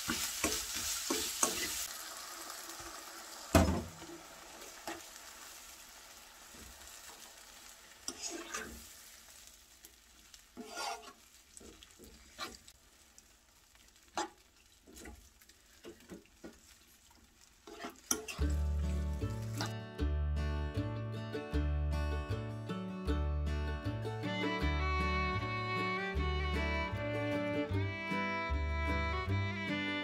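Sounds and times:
utensil scraping frying pan: 0.0s - 1.9s, 8.0s - 9.5s, 10.5s - 12.8s, 13.9s - 19.8s
faint simmering sizzle: 0.0s - 19.8s
acoustic guitar music: 18.4s - 30.0s.

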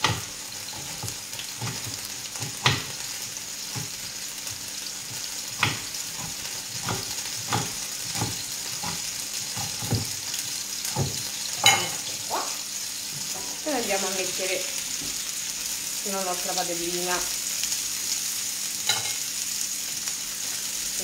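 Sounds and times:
oil sizzling in a pan: 0.0s - 21.0s.

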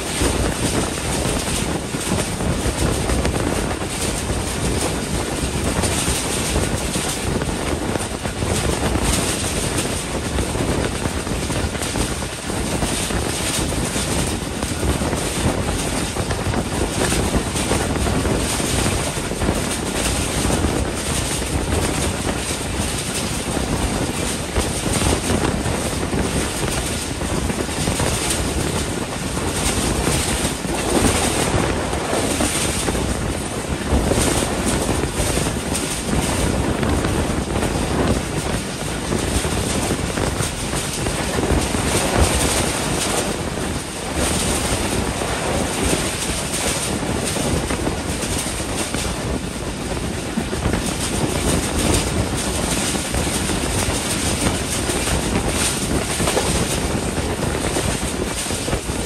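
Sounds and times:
train wheels rumbling on rails: 0.0s - 59.0s
wind on microphone: 0.0s - 59.0s.

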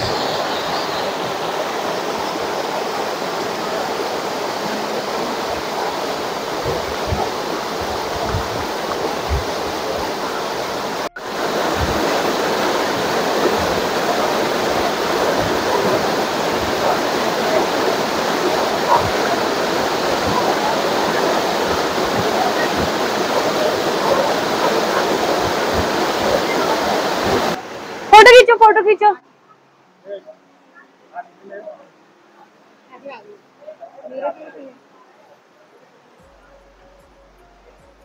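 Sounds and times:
waterfall rushing: 0.0s - 29.1s.

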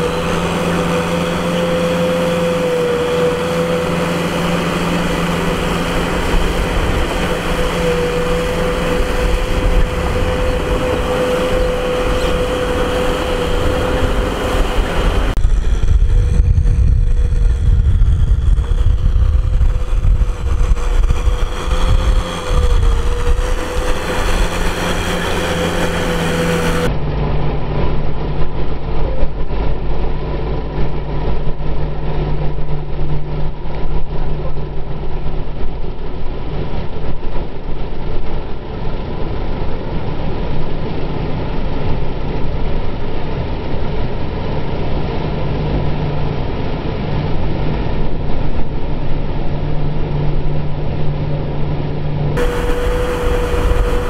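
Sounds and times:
tractor diesel engine running: 0.0s - 29.2s, 52.3s - 54.0s.

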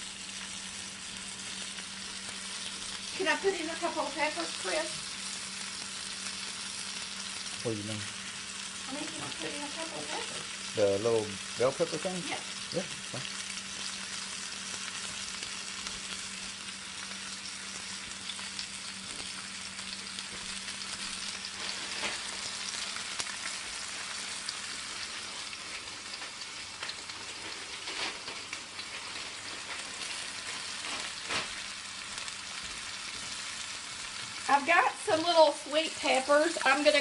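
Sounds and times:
meat sizzling in a pan: 0.0s - 37.0s.

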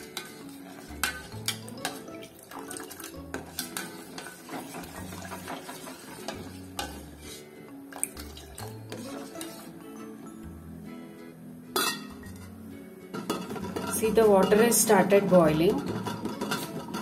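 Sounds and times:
spoon clinking against metal container: 0.0s - 5.5s, 11.8s - 12.5s, 15.7s - 17.0s
background music: 0.0s - 17.0s.

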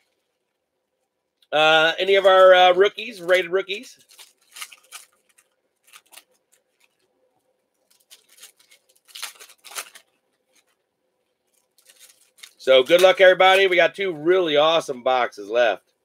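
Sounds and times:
foil wrappers crinkling and tearing: 2.0s - 7.1s, 7.8s - 14.1s.

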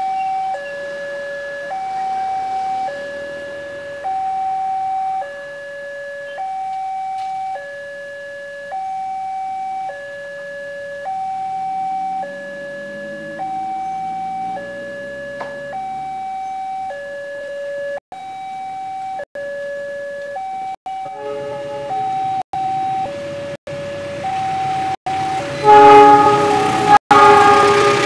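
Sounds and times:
level crossing alarm two tones: 0.0s - 28.0s
faint vehicle engine passing: 0.8s - 4.7s, 11.0s - 16.4s.

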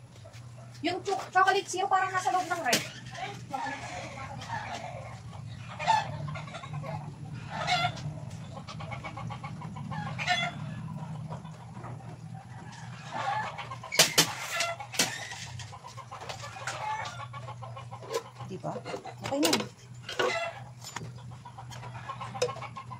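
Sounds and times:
chickens clucking: 0.0s - 22.9s
steady low hum: 0.0s - 22.9s.

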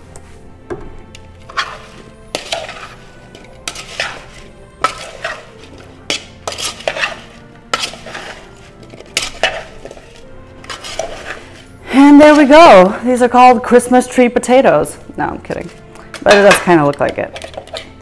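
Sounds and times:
metal spoon scraping a bowl: 1.1s - 12.7s, 15.4s - 18.0s.

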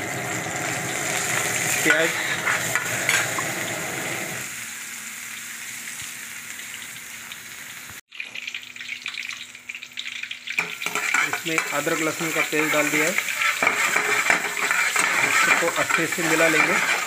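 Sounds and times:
onions sizzling in hot oil: 0.0s - 17.0s
ladle scraping a pan: 1.7s - 3.4s, 10.8s - 17.0s.

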